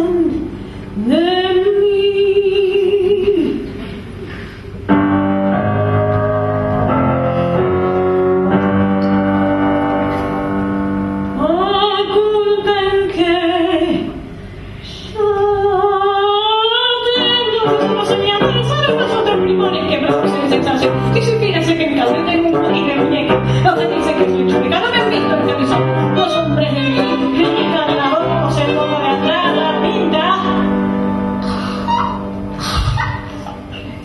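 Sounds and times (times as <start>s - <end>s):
woman singing with vibrato: 0.0s - 3.8s, 11.4s - 14.3s, 14.9s - 34.0s
piano chords: 4.8s - 14.2s, 16.9s - 34.0s.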